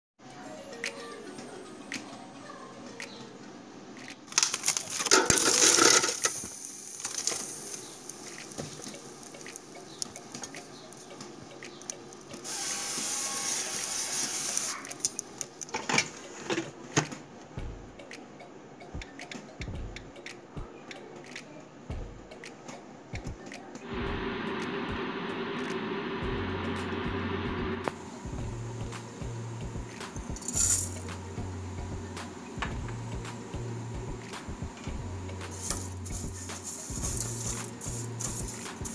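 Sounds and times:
hiss-like noise: 0:05.4 - 0:10.9, 0:11.7 - 0:14.8, 0:23.8 - 0:31.6, 0:32.2 - 0:38.9
steady hum with low drone: 0:23.9 - 0:38.9.

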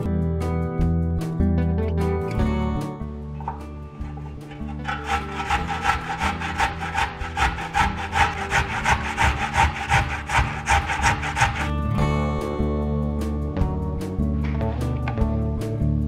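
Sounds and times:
carrot grated on metal grater: 0:04.0 - 0:11.9.

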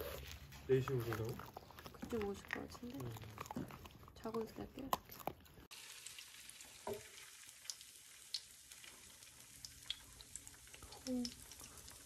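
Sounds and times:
frying sizzle with small pops: 0:05.7 - 0:12.0.

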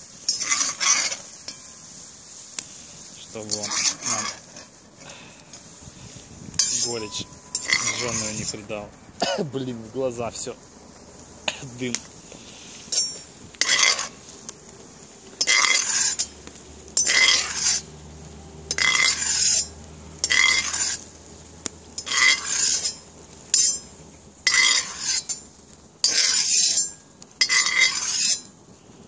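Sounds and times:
metal utensil scraping cast iron pot: 0:00.3 - 0:01.8, 0:03.4 - 0:05.2, 0:06.5 - 0:08.7, 0:12.3 - 0:14.2, 0:15.3 - 0:17.9, 0:18.7 - 0:21.1, 0:21.9 - 0:25.4, 0:26.0 - 0:28.5.

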